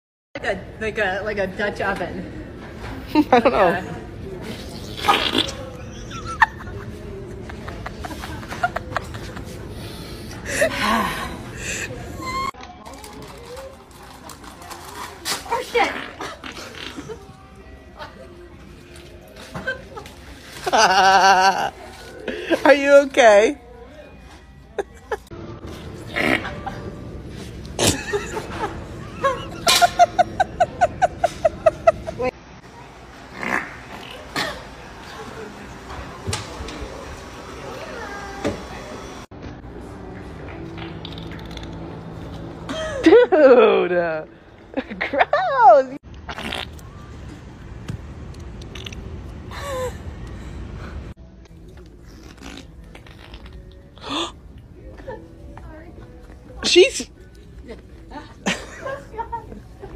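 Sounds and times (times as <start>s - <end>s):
fart sound: 4.6s - 5.7s, 26.1s - 26.6s, 33.3s - 34.4s, 46.2s - 46.9s, 52.0s - 53.7s
woman laughing: 5.8s - 9.6s, 19.6s - 22.8s, 27.8s - 32.3s, 42.7s - 44.2s, 44.8s - 46.0s, 57.7s - 59.9s.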